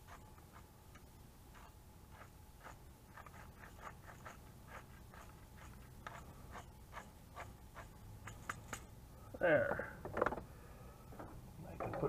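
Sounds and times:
pepper mill grinding: 0:01.5 - 0:08.6.

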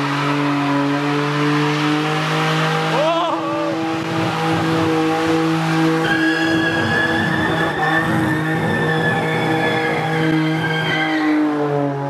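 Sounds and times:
car engine revving: 0:00.0 - 0:12.0
tyres squealing: 0:06.0 - 0:11.5.

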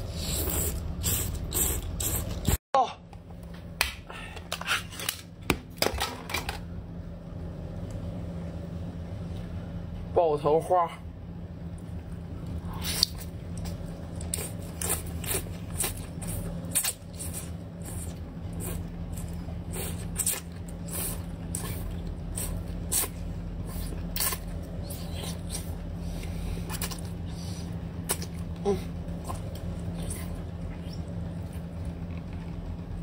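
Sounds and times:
slurping and sucking: 0:00.0 - 0:02.6, 0:14.2 - 0:28.2
wet mouth eating sounds: 0:00.0 - 0:02.6, 0:12.7 - 0:32.6
steady low hum: 0:00.0 - 0:33.0.

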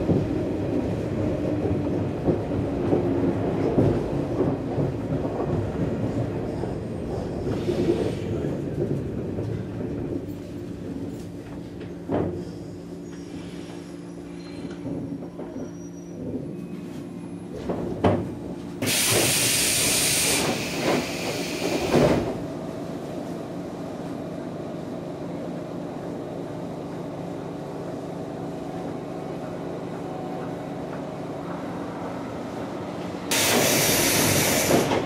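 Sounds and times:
train equipment hum: 0:00.0 - 0:35.0
train doors knocking open: 0:17.6 - 0:22.4, 0:33.3 - 0:35.0
compressed-air hiss: 0:18.8 - 0:21.9, 0:33.3 - 0:35.0.

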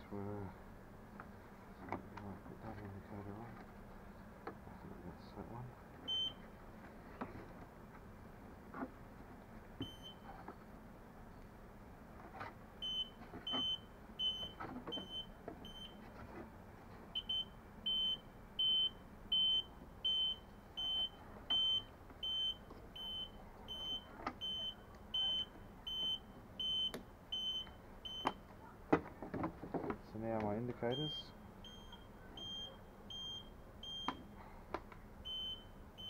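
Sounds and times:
high warning buzzer beeps: 0:06.1 - 0:06.4, 0:09.8 - 0:10.2, 0:12.8 - 0:16.0, 0:17.2 - 0:28.4, 0:30.9 - 0:34.2, 0:35.3 - 0:36.0.

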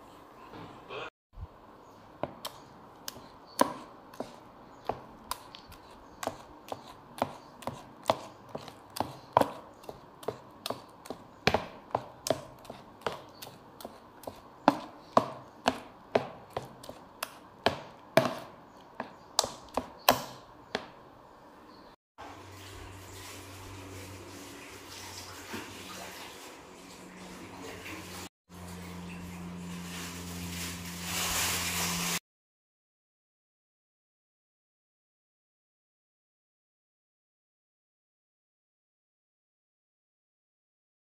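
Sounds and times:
spoon stirring thick batter: 0:02.2 - 0:21.1.

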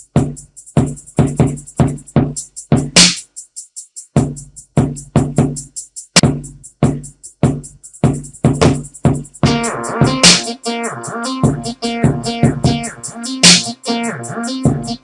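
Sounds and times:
low kick drum: 0:00.0 - 0:03.0, 0:04.2 - 0:10.5, 0:11.4 - 0:13.8, 0:14.6 - 0:15.0
closed hi-hats: 0:00.0 - 0:15.0
snare hits: 0:03.0 - 0:03.2, 0:10.2 - 0:10.5, 0:13.4 - 0:13.8.

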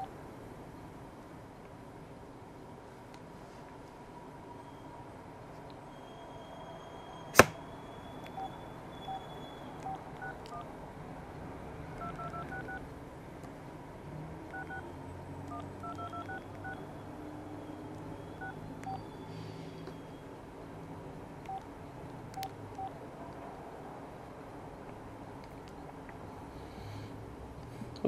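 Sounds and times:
sharp click: 0:07.4 - 0:07.6
phone keypad beeps: 0:08.2 - 0:10.7, 0:12.0 - 0:12.8, 0:14.5 - 0:14.8, 0:15.5 - 0:16.9, 0:18.4 - 0:19.1, 0:22.4 - 0:22.9.

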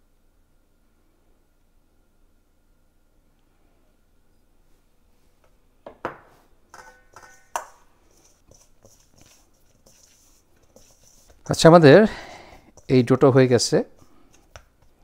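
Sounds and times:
kitchenware clinking and knocking: 0:05.9 - 0:07.8.

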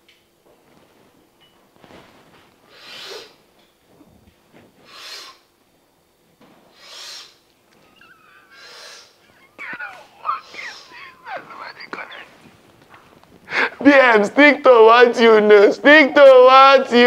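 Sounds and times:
man breathing heavily: 0:06.7 - 0:12.6, 0:13.4 - 0:13.8
faint whimper: 0:07.7 - 0:12.6.

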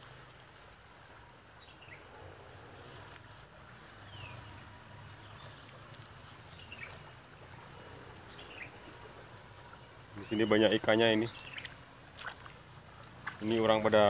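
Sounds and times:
flowing water: 0:00.0 - 0:14.0
bird chirping: 0:04.0 - 0:11.8.

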